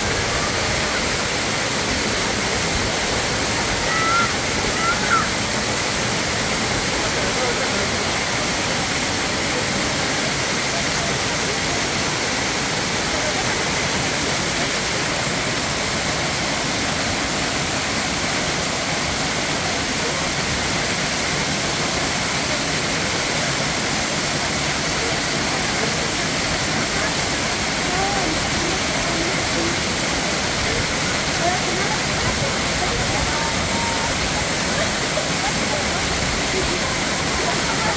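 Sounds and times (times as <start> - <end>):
waterfall rushing onto rocks: 0.0 - 37.9.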